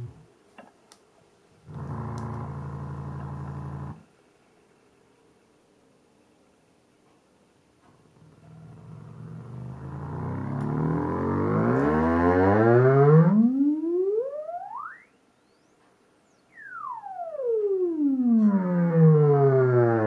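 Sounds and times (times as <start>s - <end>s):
subwoofer playing sine sweep: 0.0s - 0.2s, 1.7s - 4.0s, 8.9s - 20.0s.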